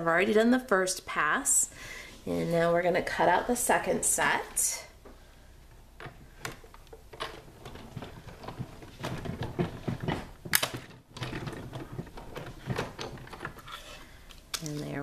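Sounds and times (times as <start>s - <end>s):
hand-cranked machine clicking and rumbling: 6.5s - 13.8s.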